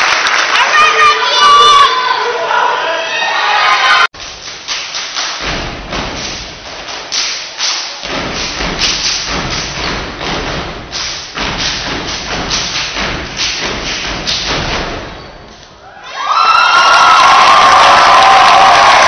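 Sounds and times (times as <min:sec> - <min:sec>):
stomping clapping and slapping: 0:04.2 - 0:15.2.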